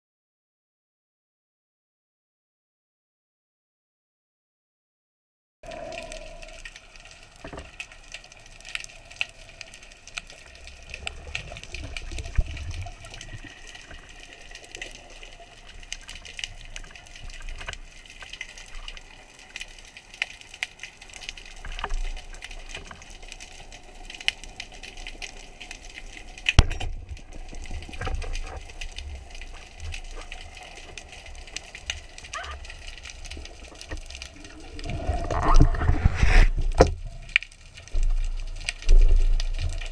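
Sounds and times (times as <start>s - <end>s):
underwater clicks and crackles: 5.6s - 39.9s
underwater watery hiss: 34.3s - 36.8s.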